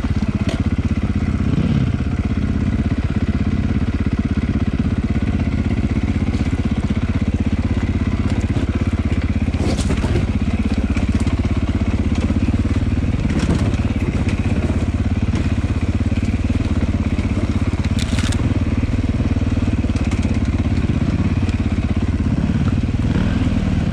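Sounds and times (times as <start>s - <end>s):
dirt bike engine running: 0.0s - 23.9s
bike knocking over rocks: 17.5s - 18.5s.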